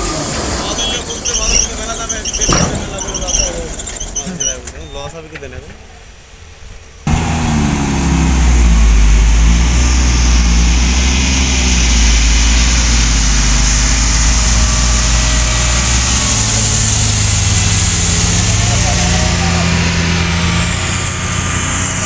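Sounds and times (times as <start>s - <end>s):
heavy diesel engine running: 0.0s - 4.7s, 7.1s - 22.0s
thin high whine: 7.1s - 21.9s.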